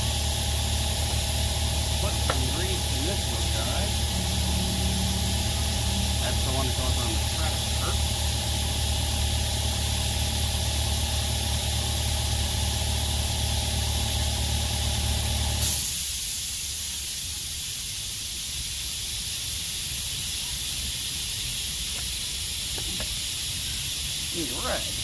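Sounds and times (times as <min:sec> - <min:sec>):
motor humming: 0:00.7 - 0:12.8
steady hiss: 0:01.8 - 0:08.8, 0:15.6 - 0:25.0.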